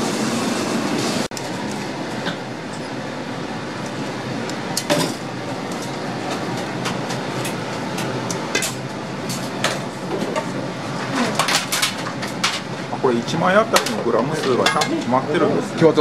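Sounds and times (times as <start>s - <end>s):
shop background hum: 0.0s - 16.0s
metal tongs clinking on bowls: 13.8s - 15.0s.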